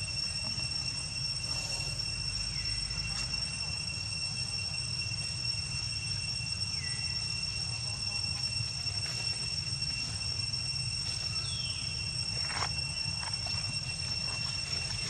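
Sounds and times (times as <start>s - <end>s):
high-pitched insect drone: 0.0s - 15.0s.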